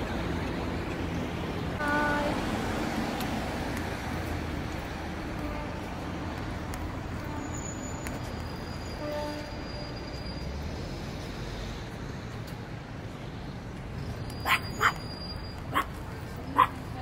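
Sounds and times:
outdoor background noise: 0:00.0 - 0:17.0
dog barking: 0:14.4 - 0:15.0, 0:15.7 - 0:15.9, 0:16.5 - 0:16.8.

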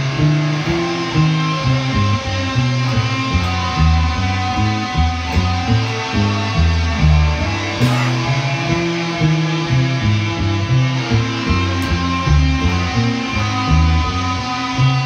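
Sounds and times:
electric bass line: 0:00.0 - 0:15.0
sustained guitar tones: 0:00.0 - 0:15.0.

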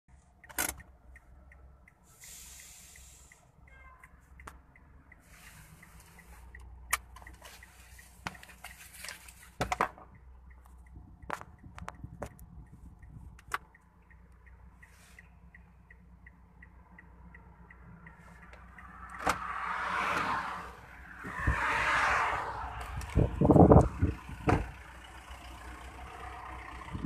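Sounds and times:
car road noise rumble: 0:00.1 - 0:27.0
hiss: 0:02.2 - 0:03.4
faint rapid ticking: 0:10.1 - 0:19.0.

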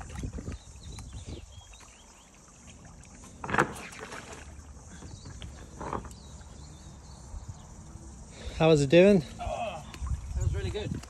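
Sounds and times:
paddle strokes splashing water: 0:00.0 - 0:06.7.

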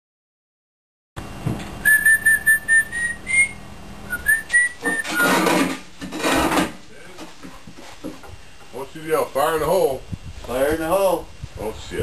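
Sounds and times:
person whistling a tune: 0:01.8 - 0:05.3.

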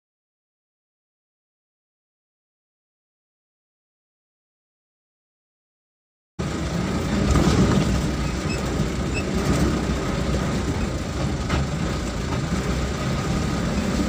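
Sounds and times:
vehicle engine and road rumble: 0:06.4 - 0:14.0.

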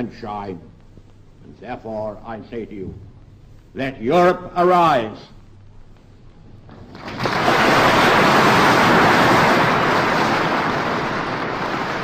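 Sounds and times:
audience applauding: 0:06.9 - 0:12.0.

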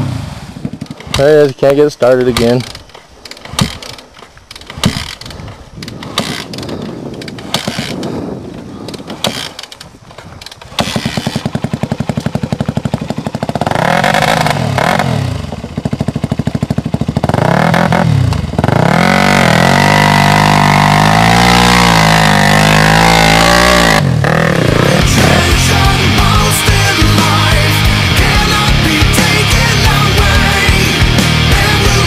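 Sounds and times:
dirt bike engine revving: 0:00.0 - 0:32.0
dirt bike clunks and knocks: 0:02.2 - 0:13.6.

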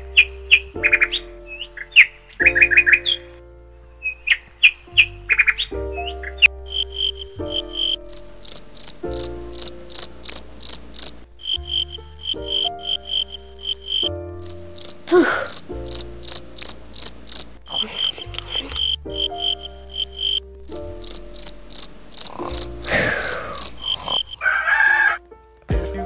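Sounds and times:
crickets chirping: 0:06.7 - 0:18.2, 0:18.8 - 0:24.4.

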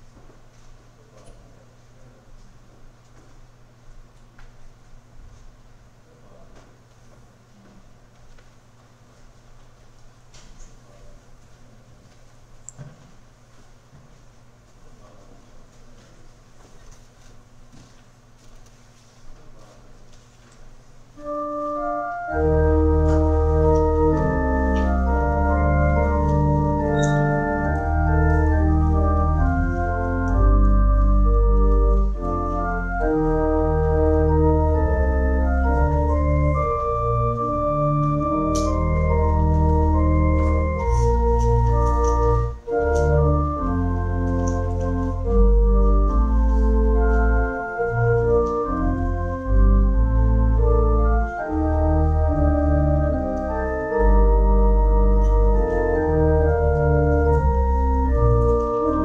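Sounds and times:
church organ playing: 0:21.2 - 0:59.0.

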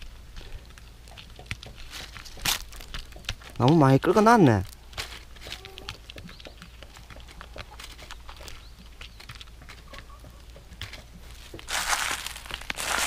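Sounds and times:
cat claws scratching dry wood: 0:10.8 - 0:13.0.

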